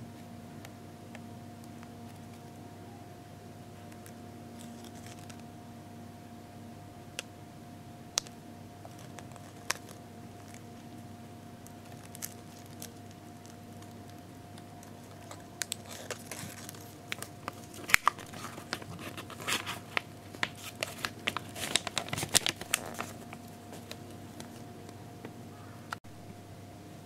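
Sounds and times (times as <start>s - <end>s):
paper towel crinkling: 14.8s - 24.8s.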